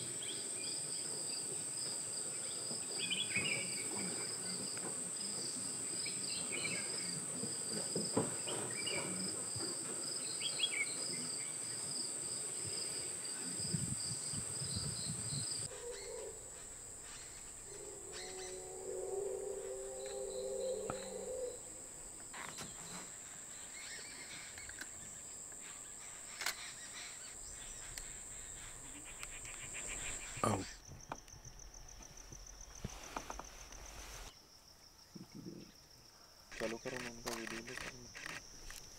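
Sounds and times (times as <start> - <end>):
pulsing insect call: 0.0 - 38.9
faint bird chirps: 12.6 - 21.8.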